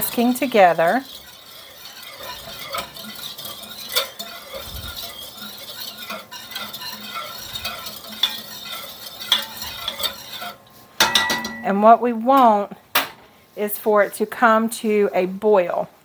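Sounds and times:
whisk clinking against pot: 0.0 - 11.8
whisk scraping a metal saucepan: 0.0 - 12.7, 13.5 - 15.8.

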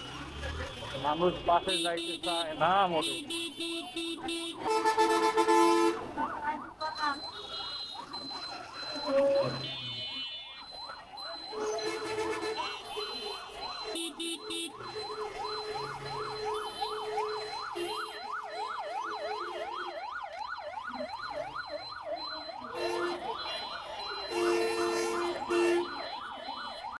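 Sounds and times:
road traffic: 0.0 - 27.0
vehicle horns beeping: 0.8 - 6.1, 6.8 - 10.6, 11.3 - 18.3, 22.6 - 26.0
yelping siren: 6.0 - 27.0.

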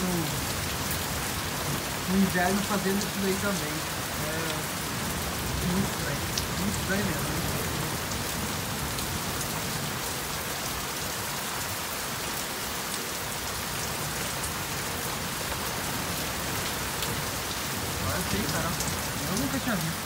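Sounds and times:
heavy rain hissing: 0.0 - 20.0.

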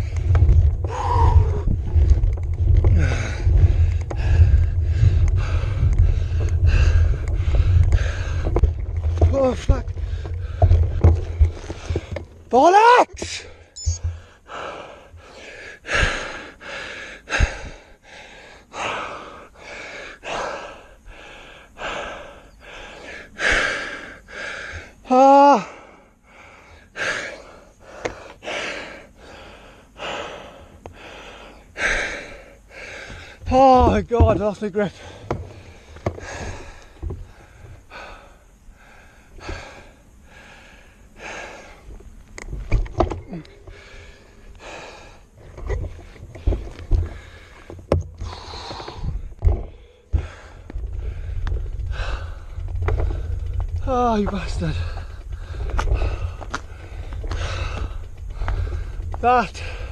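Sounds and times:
heavy laboured breathing: 0.0 - 12.4, 13.2 - 42.2, 43.1 - 59.9.

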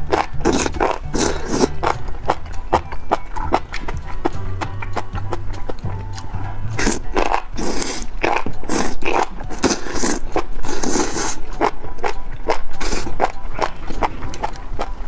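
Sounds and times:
person slurping noodles: 0.0 - 2.0, 6.4 - 11.8, 12.8 - 13.3
wet chewing: 0.0 - 15.0.

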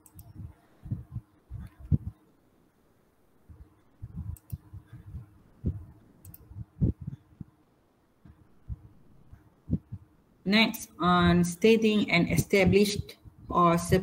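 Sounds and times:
soft clicks: 0.0 - 0.5, 4.2 - 4.7, 6.2 - 6.5
low thumps: 3.5 - 5.9, 6.5 - 7.5.

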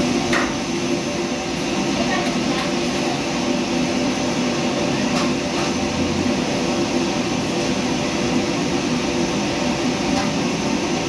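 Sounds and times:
extraction hood fan drone: 0.0 - 11.0.

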